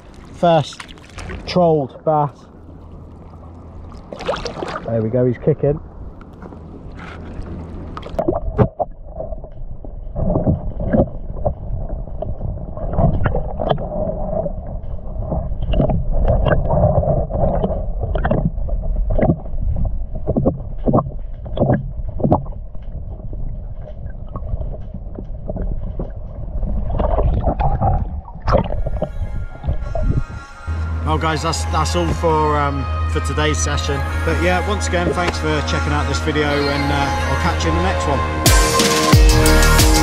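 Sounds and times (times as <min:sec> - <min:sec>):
muffled underwater water sloshing: 0:00.0 - 0:30.8
steady low rumble: 0:00.0 - 0:40.0.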